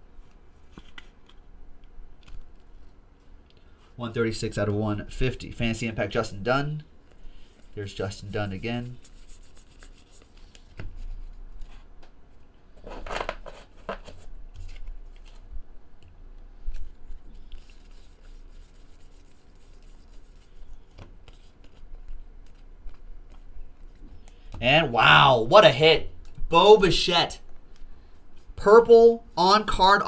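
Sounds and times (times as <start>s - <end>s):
card rustle: 0.2s - 1.4s, 12.8s - 15.5s, 16.6s - 24.6s.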